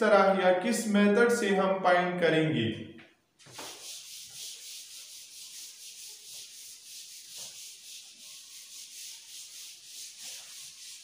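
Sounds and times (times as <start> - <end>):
duster rubbing on whiteboard: 3.4 - 11.0.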